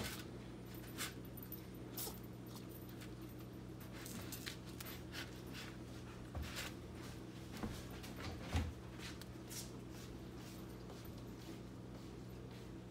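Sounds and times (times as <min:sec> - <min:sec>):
kitten scratching in cat litter: 0:00.0 - 0:07.4
steady low hum: 0:00.0 - 0:12.9.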